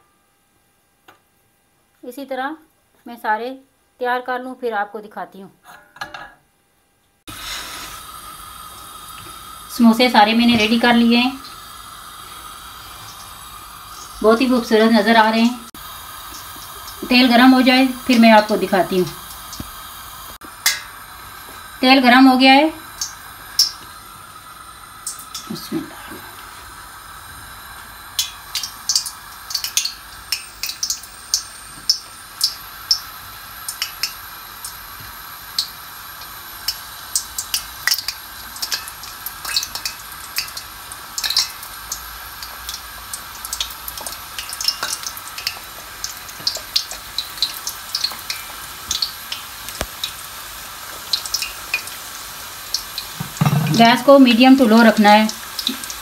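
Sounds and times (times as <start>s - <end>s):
deep-frying sizzle: 7.2s - 56.0s
oil popping and crackling: 15.7s - 21.8s, 22.8s - 24.1s, 25.0s - 56.0s.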